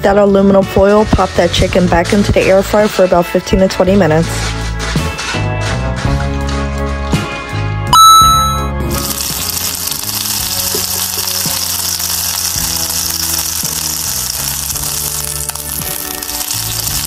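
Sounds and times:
background music with bass line: 0.0 - 17.0
chicken sizzling in air fryer: 8.9 - 17.0.

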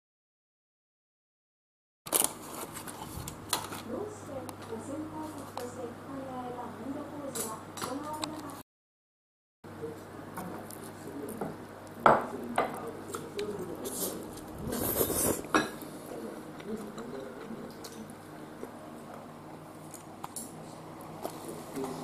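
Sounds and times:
tableware clinking and knocking: 15.5 - 15.8.

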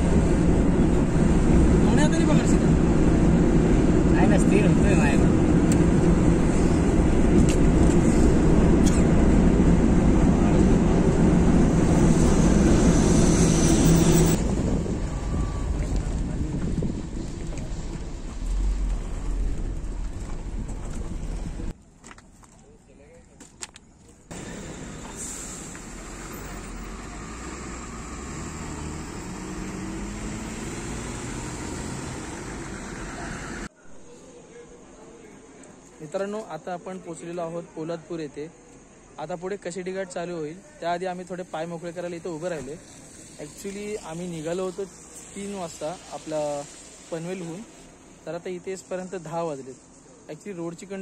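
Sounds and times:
car road noise: 0.0 - 21.8, 24.3 - 33.7, 41.1 - 51.0
vehicle engine rumble: 0.0 - 22.0, 24.2 - 33.7.

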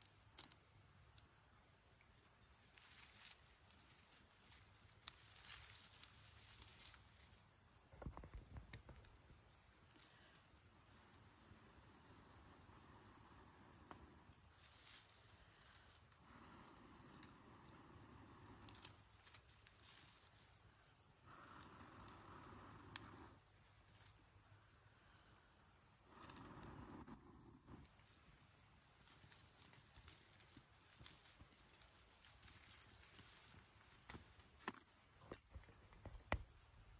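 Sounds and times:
insects droning: 0.0 - 36.9
person blowing on ember: 21.2 - 23.3, 26.1 - 27.8
faint clicks: 21.3 - 23.2.

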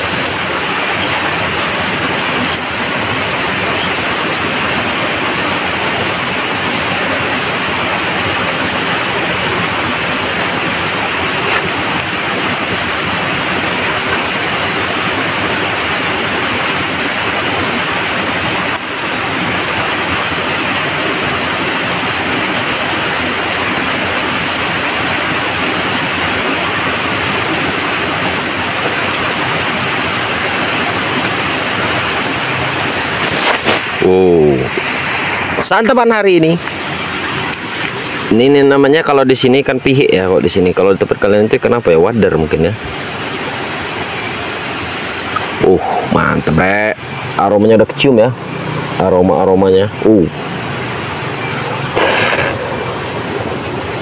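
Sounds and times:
loud rushing noise: 31.0 - 37.5, 50.2 - 54.0
high hiss: 32.5 - 37.4, 51.5 - 54.0.

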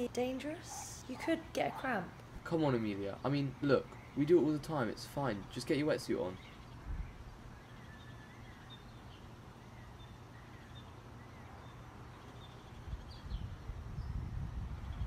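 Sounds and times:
faint bird chirps: 6.2 - 15.0
wind rumble on microphone: 6.7 - 7.4, 12.6 - 15.0.

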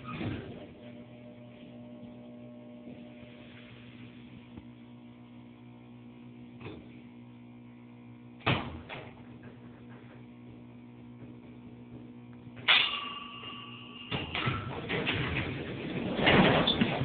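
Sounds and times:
elevator electrical hum: 0.0 - 17.0
elevator clunks: 12.6 - 17.0.

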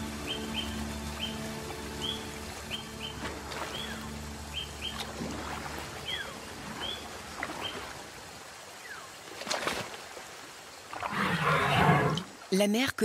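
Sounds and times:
birds chirping: 0.0 - 7.9
elephant foot splashing in water: 4.9 - 8.2, 9.2 - 10.3.

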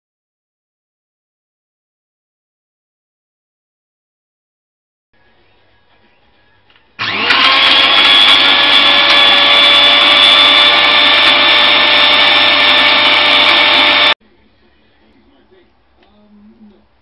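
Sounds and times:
blender motor running: 7.0 - 14.2.

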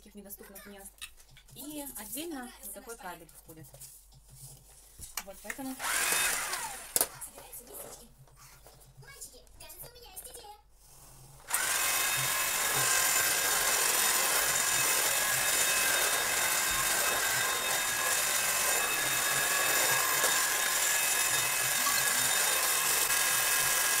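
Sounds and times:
stick vacuum cleaner running: 5.7 - 7.4, 11.4 - 24.0.

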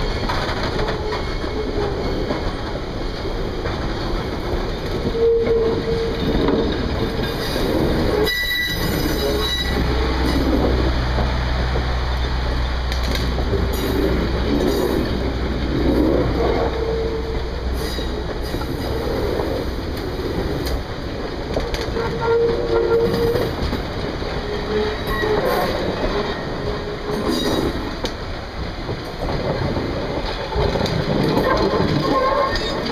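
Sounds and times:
train wheels rumbling and clacking: 0.0 - 32.9
wheels squealing: 4.7 - 10.8, 24.3 - 27.9, 30.4 - 32.9.

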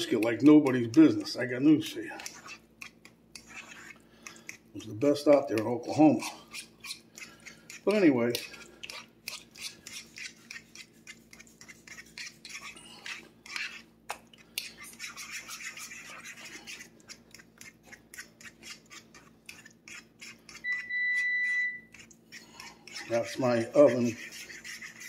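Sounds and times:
utensil scraping in a bowl: 0.0 - 25.0
oven beep: 20.6 - 21.9.

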